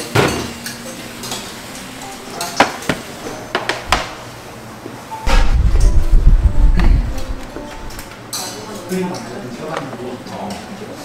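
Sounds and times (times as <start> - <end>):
loud low noise: 5.3 - 8.2.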